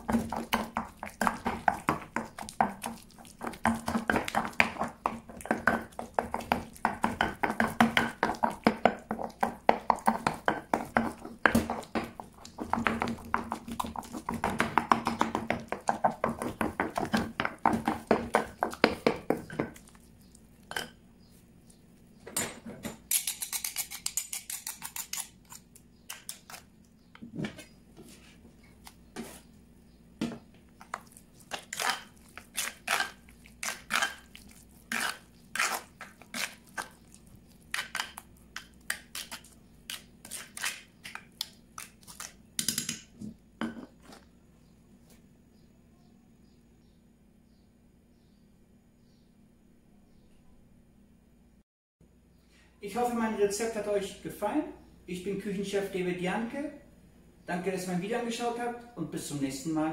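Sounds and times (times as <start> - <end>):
pestle mashing avocado: 0.0 - 21.0, 30.2 - 44.2.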